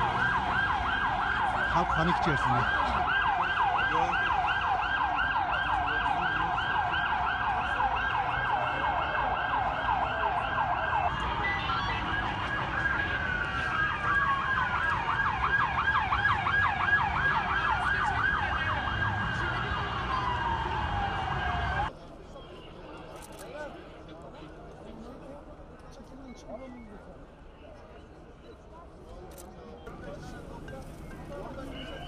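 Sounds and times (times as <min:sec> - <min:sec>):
slower wailing siren: 0:00.0 - 0:21.9
low street rumble: 0:27.0 - 0:32.0.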